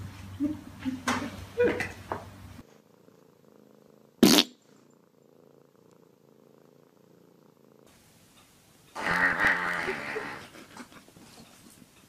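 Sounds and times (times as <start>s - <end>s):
cat purring: 2.6s - 8.0s, 8.8s - 11.9s.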